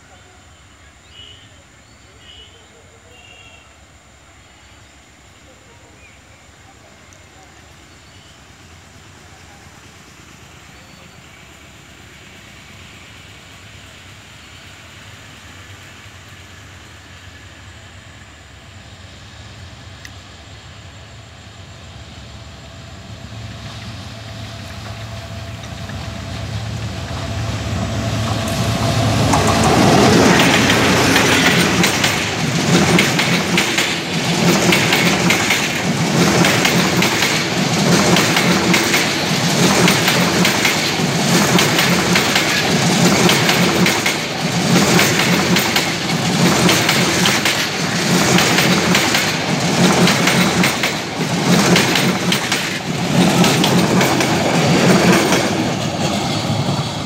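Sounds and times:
diesel locomotive engine: 0.0 - 57.0
train wheels clattering over rail joints: 24.7 - 57.0.

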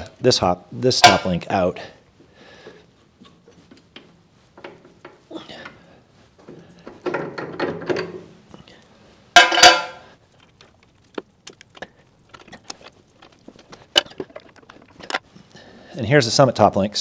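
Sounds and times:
metal scraping and rattling: 6.5 - 8.4, 9.4 - 15.5
small metal clicks: 8.8 - 15.3
loud ringing metal clank: 9.4 - 10.0.

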